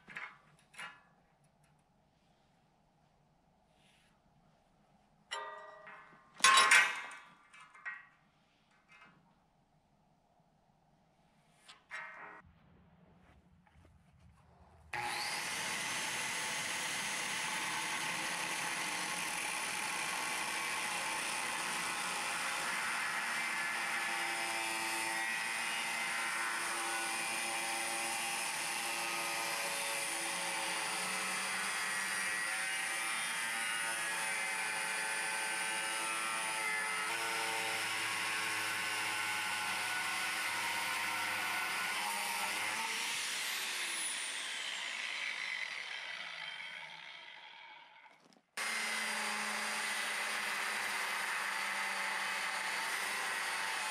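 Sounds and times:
angle grinder whine on steel: 0:15.0 - 0:53.9.

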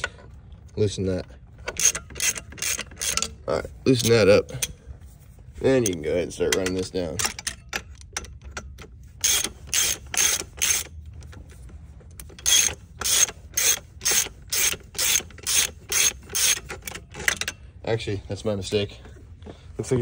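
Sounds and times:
hand ratchet clicking: 0:01.6 - 0:03.4, 0:05.8 - 0:11.0, 0:12.2 - 0:17.6.

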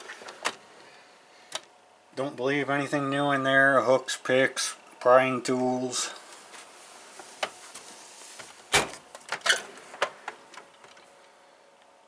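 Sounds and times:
metal drawers shutting and opening: 0:08.7 - 0:10.2.

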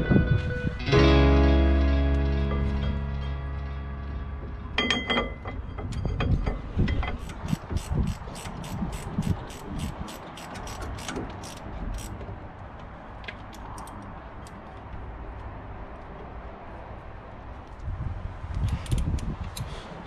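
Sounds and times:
metal knocking on metal: 0:04.8 - 0:08.2
ratchet spanner clicking: 0:06.9 - 0:12.2, 0:18.6 - 0:19.7.

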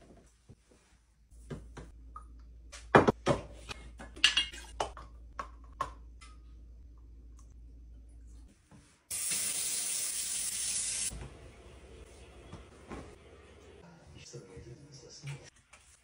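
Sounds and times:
low steady hum: 0:03.6 - 0:09.0.

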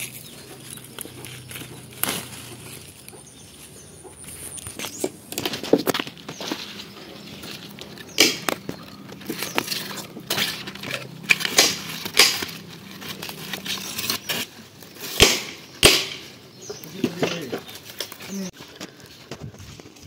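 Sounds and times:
leaf stalks snapping: 0:00.0 - 0:03.2, 0:07.5 - 0:18.2
leaves rustling: 0:00.0 - 0:20.0.

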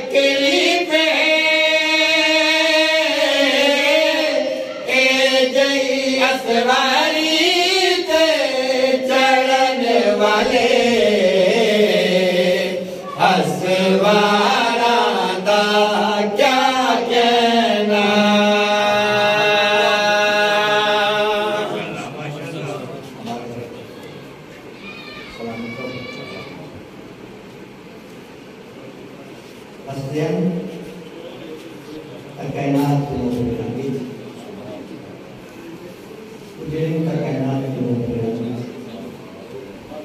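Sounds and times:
man chanting into a microphone: 0:00.0 - 0:22.1, 0:36.6 - 0:39.2.

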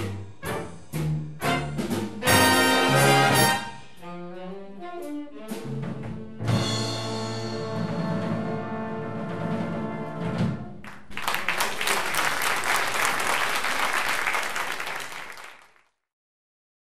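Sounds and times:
big band saxophones and brass: 0:00.0 - 0:10.8
rhythm section: 0:00.0 - 0:11.2
audience applauding: 0:10.8 - 0:16.0.

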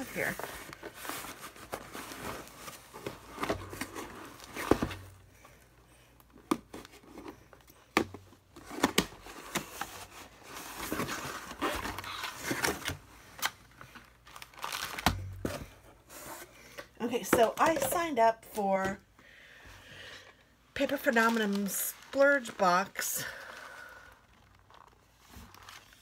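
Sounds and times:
packaging crinkling and rustling: 0:00.0 - 0:05.3, 0:06.2 - 0:16.3, 0:20.8 - 0:26.0.

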